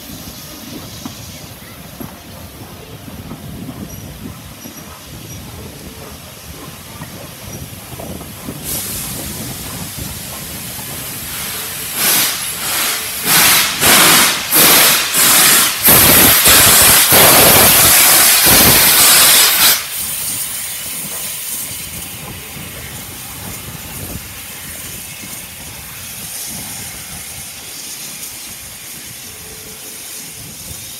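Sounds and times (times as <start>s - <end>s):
steam hissing: 0.0s - 30.9s
steam locomotive chuffing: 0.0s - 30.9s
loud blast of steam: 8.0s - 30.9s.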